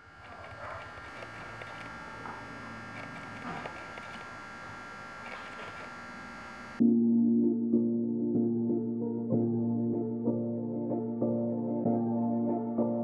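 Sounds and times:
electrical hum: 0.0s - 6.8s
record and tonearm clicks: 0.0s - 6.8s
music: 6.8s - 13.0s.

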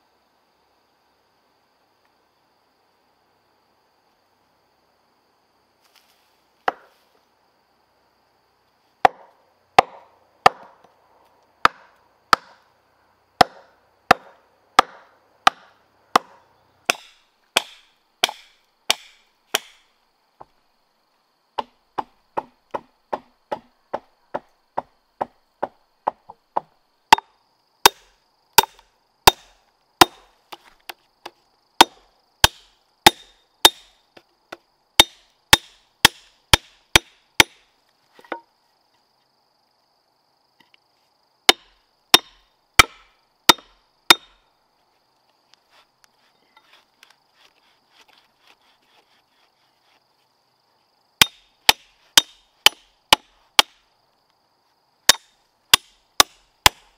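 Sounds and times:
wood chopped by hand: 6.6s - 6.9s, 9.0s - 10.8s, 11.6s - 12.6s, 13.4s - 19.9s, 21.6s - 33.9s, 34.5s - 37.6s, 41.5s - 44.3s, 51.2s - 53.8s, 55.1s - 56.9s.

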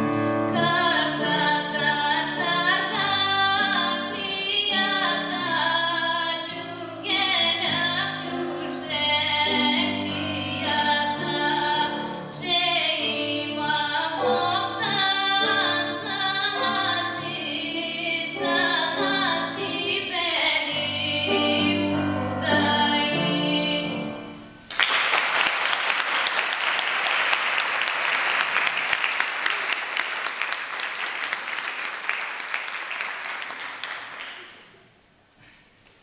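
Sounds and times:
grand piano accompaniment: 0.0s - 24.7s
woman singing folk song: 0.5s - 24.3s
audience applause: 24.7s - 34.7s.

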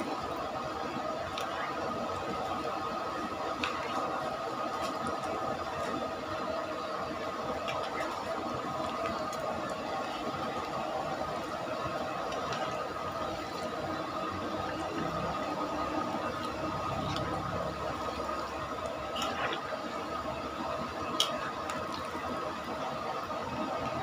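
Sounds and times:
chicken deep-frying in oil: 0.0s - 24.0s.

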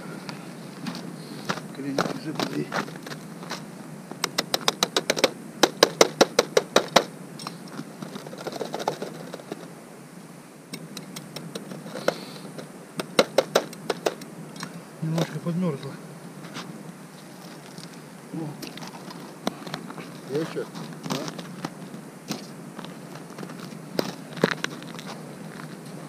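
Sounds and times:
sharp clicking knocks: 4.2s - 9.6s, 10.7s - 15.4s.

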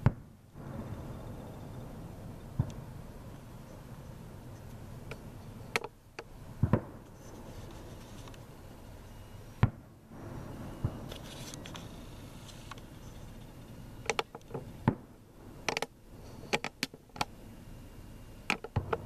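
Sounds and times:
fireworks bangs: 0.0s - 3.3s, 6.5s - 7.9s, 9.6s - 12.4s
steady background hiss: 0.0s - 19.0s.

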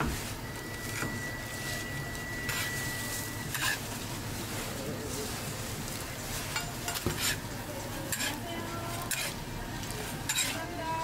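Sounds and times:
pancakes sizzling in oil: 0.1s - 11.0s
metal scraping on griddle: 2.4s - 4.6s, 6.3s - 9.4s, 10.1s - 10.8s.

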